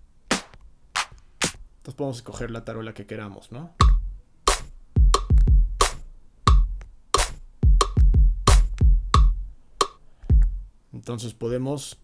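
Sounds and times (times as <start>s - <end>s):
electronic snare hits: 0.3s - 1.6s, 3.8s - 10.5s
electronic kick drum thumps: 3.8s - 10.7s.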